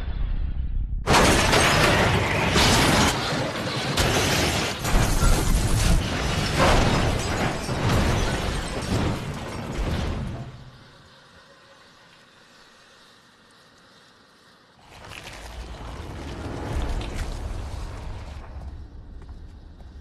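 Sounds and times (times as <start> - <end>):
low rumble: 0.0 - 1.1, 14.8 - 20.0
glass shattering: 1.1 - 10.7
crumpling metal crashes: 1.1 - 10.9.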